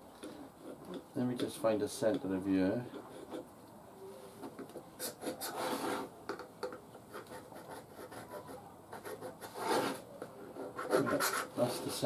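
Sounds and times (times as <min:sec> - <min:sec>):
marking tool scratching on wood: 0:02.9 - 0:03.5, 0:04.5 - 0:12.0.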